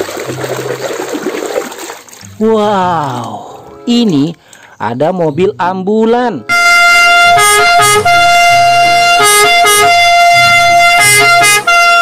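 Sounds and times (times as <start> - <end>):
two-tone ambulance siren: 6.5 - 12.0.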